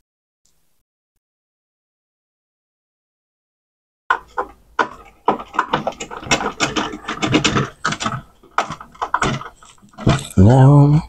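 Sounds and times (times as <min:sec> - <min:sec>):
plastic and metal parts rattling: 0:04.1 - 0:10.5.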